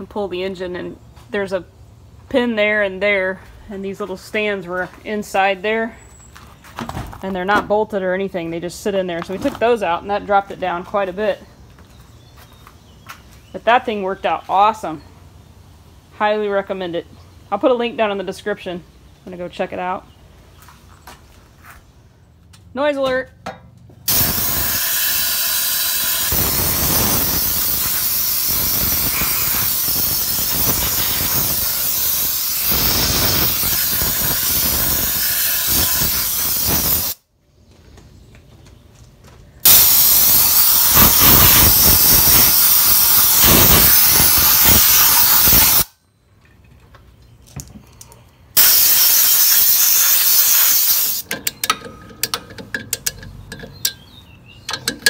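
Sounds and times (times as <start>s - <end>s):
compressed-air blow gun hissing: 24.1s - 37.2s, 39.6s - 45.9s, 48.6s - 51.2s
hand ratchet clicking: 24.1s - 37.2s.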